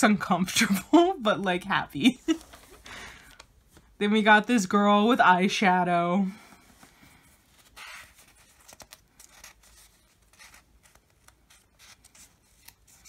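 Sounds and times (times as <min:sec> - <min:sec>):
paper rustling: 0:06.4 - 0:13.0.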